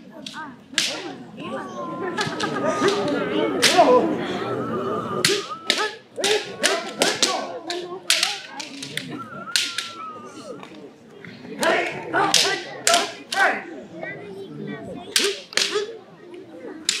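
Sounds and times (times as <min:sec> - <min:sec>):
people murmuring: 0:00.0 - 0:17.0
practice swords striking: 0:00.2 - 0:01.1, 0:05.2 - 0:09.0, 0:11.6 - 0:13.6, 0:15.1 - 0:15.9.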